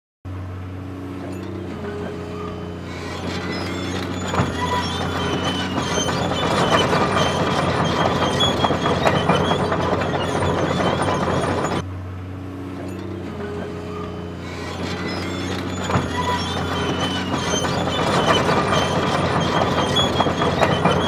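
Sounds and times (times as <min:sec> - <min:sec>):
heavy machinery hum: 0:00.3 - 0:21.0
high squeals: 0:01.8 - 0:11.8, 0:13.4 - 0:21.0
loud metallic clatter: 0:02.9 - 0:11.8, 0:14.5 - 0:21.0.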